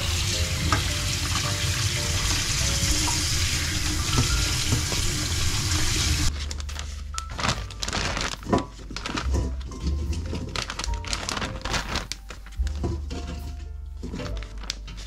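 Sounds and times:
tap water running into colander: 0.0 - 6.3
plastic bags crinkling: 6.3 - 15.0.

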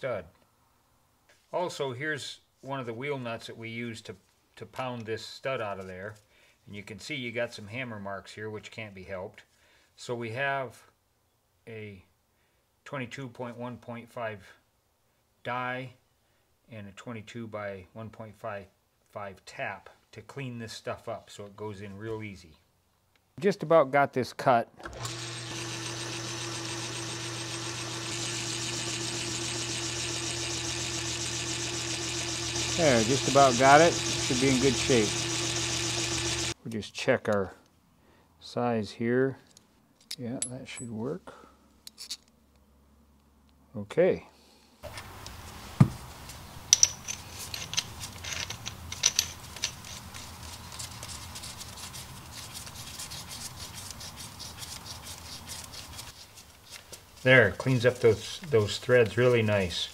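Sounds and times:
lathe cutting hiss: 24.8 - 36.6
metal lathe motor hum: 24.8 - 36.6.

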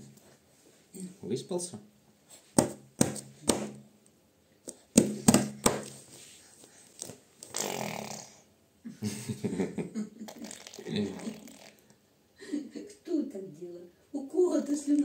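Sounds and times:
sharp knocks: 2.6 - 3.8
baby blowing raspberries: 6.7 - 8.5, 10.3 - 11.9.

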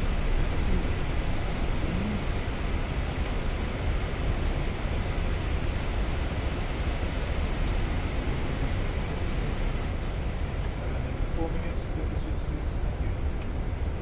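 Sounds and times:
cockpit airflow and engine hiss: 0.0 - 14.0.

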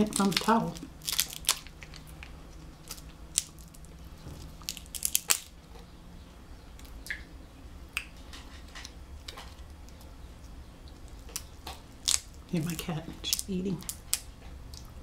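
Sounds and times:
wet squishing: 0.0 - 5.5
crab shell cracking: 0.0 - 5.6, 10.8 - 14.9.

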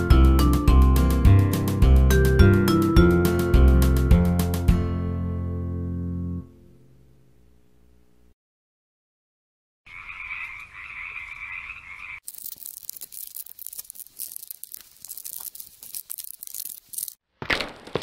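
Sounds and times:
frog croaking: 9.9 - 12.2
dense crackling with clicks: 12.2 - 18.0.

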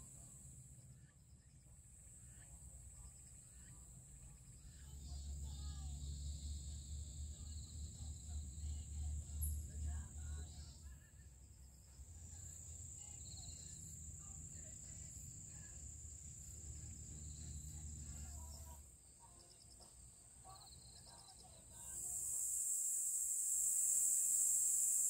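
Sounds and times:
crickets chirring: 0.0 - 25.0
steady hiss: 21.8 - 25.0.

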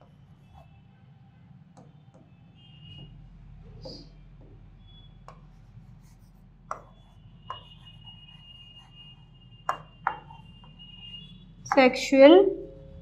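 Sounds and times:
faint chalk scratching: 2.9 - 11.9
chalk tapping on a blackboard: 3.8 - 11.9.

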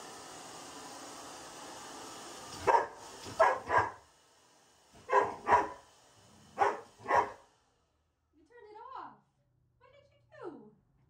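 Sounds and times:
hair dryer blowing: 0.0 - 7.9
dog barking: 2.6 - 4.0, 5.0 - 5.8, 6.6 - 7.4.

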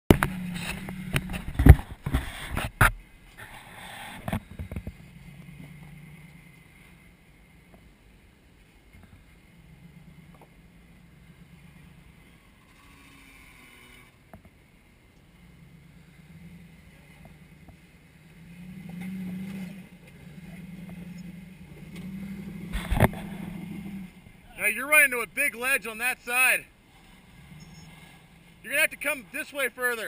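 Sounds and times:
distant car engine at low revs: 0.1 - 30.0.

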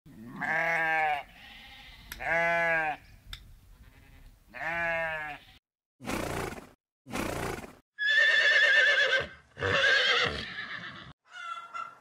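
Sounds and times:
sheep bleating: 0.2 - 3.0, 3.8 - 5.6.

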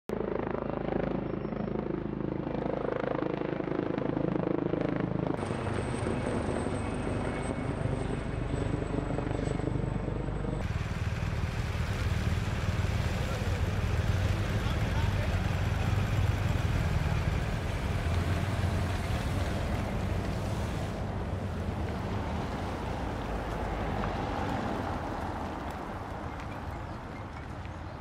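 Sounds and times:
vehicle engine humming: 9.4 - 28.0.

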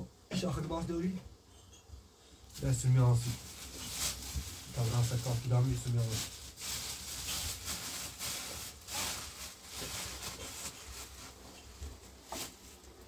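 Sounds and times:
cloth rustling: 2.6 - 13.0.

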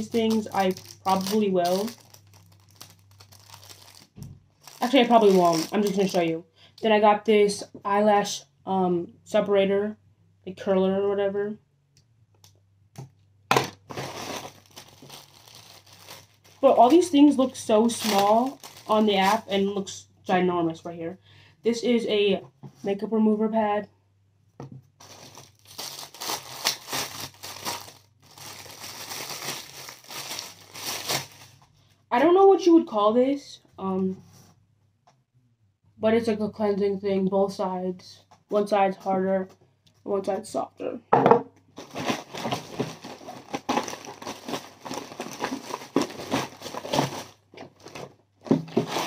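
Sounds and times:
plastic packaging crinkling: 0.0 - 6.4, 13.6 - 19.7, 25.0 - 31.6, 41.8 - 49.0.

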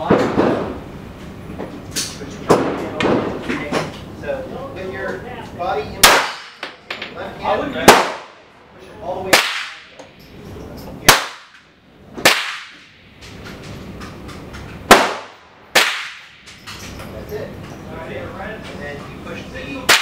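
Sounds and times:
pistol shots echoing: 6.0 - 6.7, 7.8 - 8.4, 9.3 - 9.9, 11.1 - 11.6, 12.2 - 12.9, 14.9 - 16.4.

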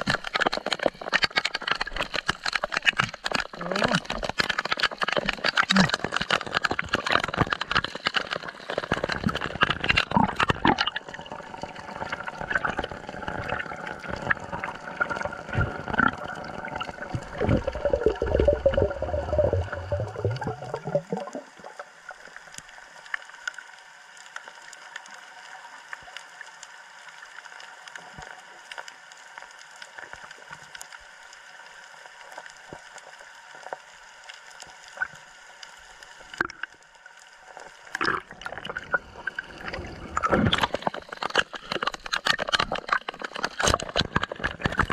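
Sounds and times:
water splashing and gurgling: 0.0 - 44.9
muffled underwater hush: 11.4 - 21.8
faint ticks: 21.2 - 38.1.

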